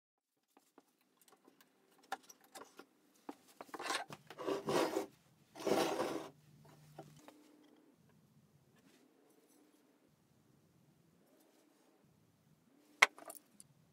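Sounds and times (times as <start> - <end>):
hand plane scraping on bench: 3.8 - 6.3.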